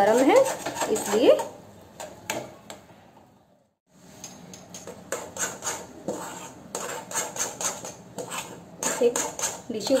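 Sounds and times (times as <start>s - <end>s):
metal spoon scraping a pot: 0.0s - 2.1s, 4.7s - 10.0s.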